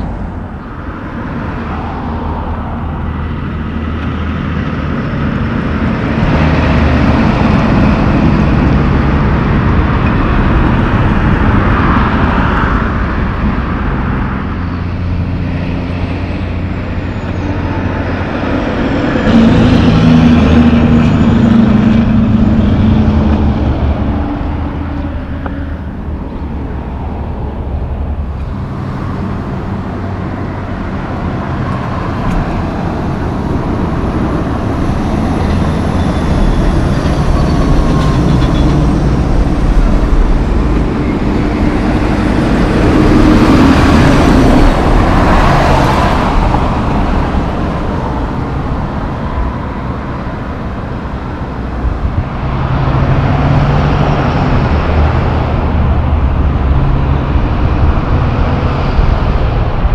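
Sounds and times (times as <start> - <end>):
road traffic: 0.0 - 59.9
truck driving past: 0.0 - 59.9.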